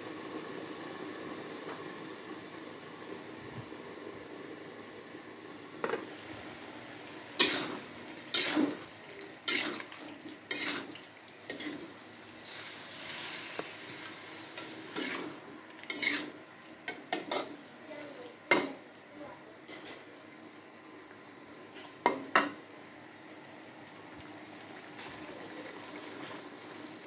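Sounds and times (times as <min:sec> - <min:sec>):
sauce sizzling: 0:00.0 - 0:17.7
metal spatula scraping wok: 0:07.4 - 0:08.8, 0:09.4 - 0:11.9, 0:14.6 - 0:16.4.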